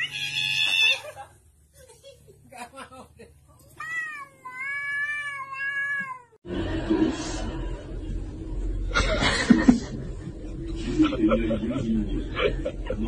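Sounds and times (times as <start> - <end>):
cat meowing: 0.0 - 1.0, 3.8 - 6.4
noisy background: 6.5 - 13.0.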